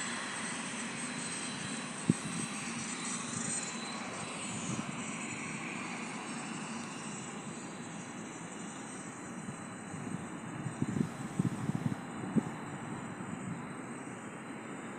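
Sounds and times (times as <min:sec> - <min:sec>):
distant aircraft engine rushing: 0:00.0 - 0:14.9.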